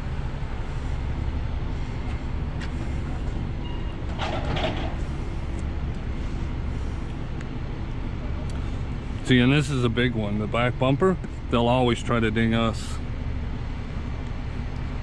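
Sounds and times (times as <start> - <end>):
traffic engine rumble: 0.0 - 15.0.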